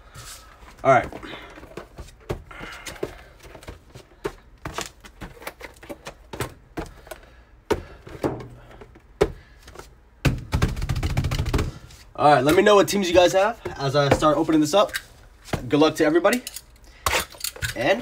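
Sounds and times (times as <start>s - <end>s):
cardboard boxes knocking on table: 10.2s - 11.8s.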